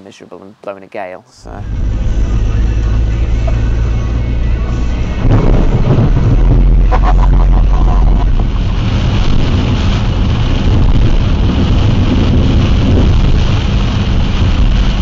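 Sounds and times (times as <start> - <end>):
wind buffeting microphone: 5.2 - 15.0.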